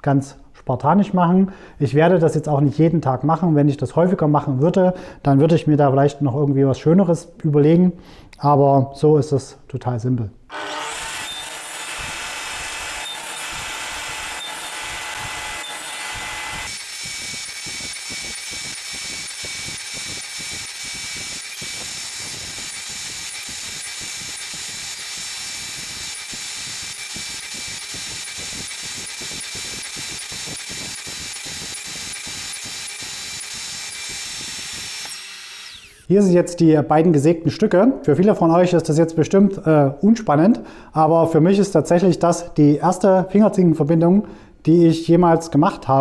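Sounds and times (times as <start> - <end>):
table saw cutting wood: 10.5 - 36.1.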